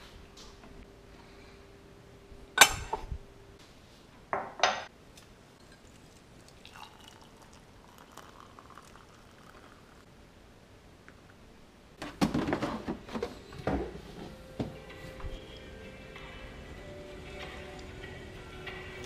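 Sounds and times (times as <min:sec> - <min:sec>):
water pouring into mug: 0:05.6 - 0:10.0.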